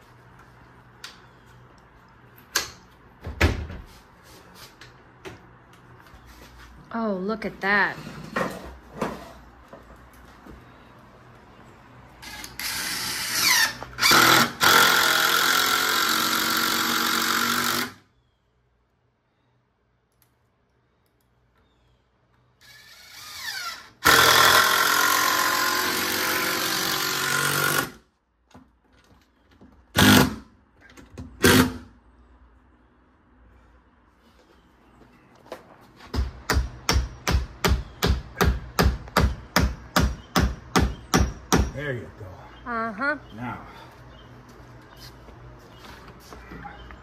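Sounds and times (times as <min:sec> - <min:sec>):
power driver driving screws: 0:12.2 - 0:18.0, 0:30.0 - 0:30.4.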